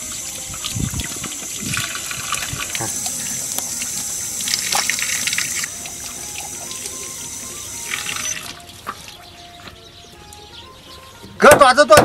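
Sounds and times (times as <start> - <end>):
water running from a tap: 0.0 - 9.1.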